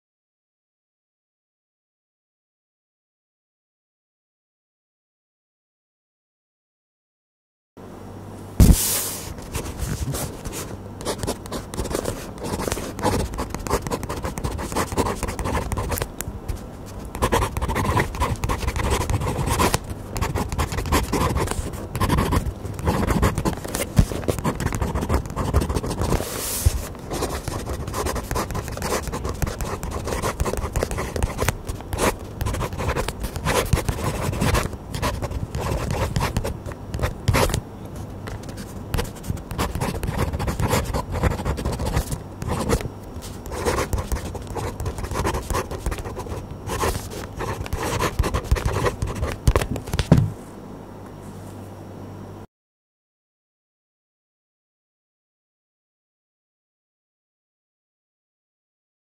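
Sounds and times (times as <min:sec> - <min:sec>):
pen nib scratching on paper: 0:09.5 - 0:37.6, 0:38.5 - 0:49.7.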